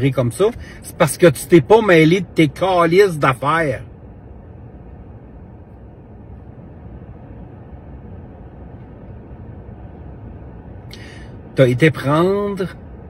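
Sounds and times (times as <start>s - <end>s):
low rumble inside a car: 0.0s - 13.0s.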